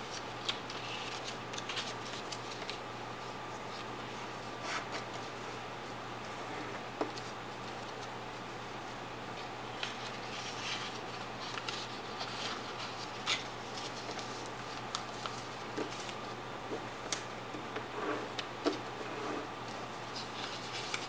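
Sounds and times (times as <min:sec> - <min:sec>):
paper rustling and crinkling: 0:00.0 - 0:05.4, 0:08.8 - 0:18.9, 0:19.6 - 0:21.0.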